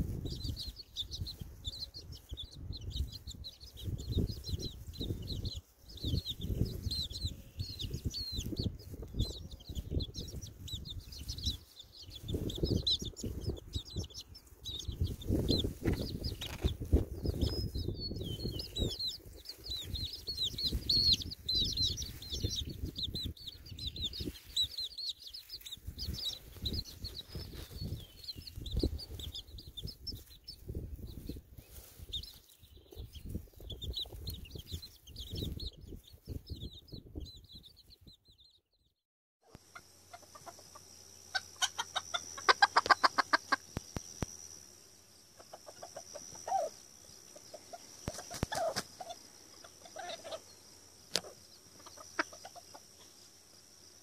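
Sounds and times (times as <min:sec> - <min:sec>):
wind rumbling on microphone: 0:00.0 - 0:38.2
chicks peeping: 0:00.0 - 0:38.7, 0:39.5 - 0:44.5, 0:45.1 - 0:53.6.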